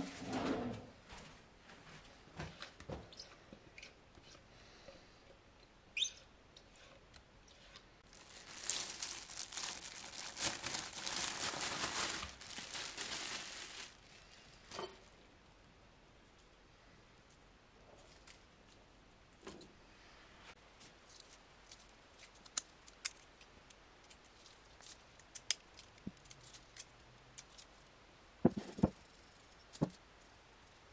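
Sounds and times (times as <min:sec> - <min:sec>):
plastic bag crinkling: 0:08.0 - 0:15.0.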